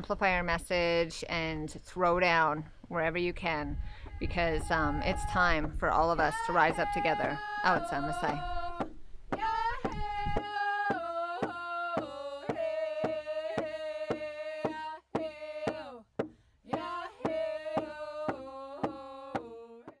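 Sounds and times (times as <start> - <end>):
women singing together: 3.6 - 16.0, 16.7 - 20.0
hand drum beat: 4.6 - 20.0.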